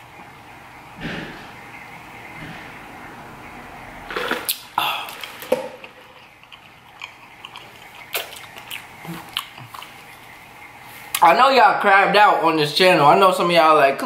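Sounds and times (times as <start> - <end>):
swallowing: 4.1 - 10.4
wet mouth clicks and smacks: 4.2 - 10.3.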